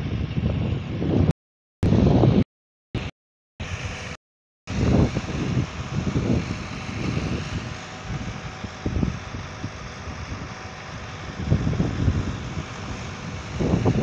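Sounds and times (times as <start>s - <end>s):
wind buffeting microphone: 0.0s - 2.4s, 4.7s - 14.0s
diesel engine running: 3.0s - 14.0s.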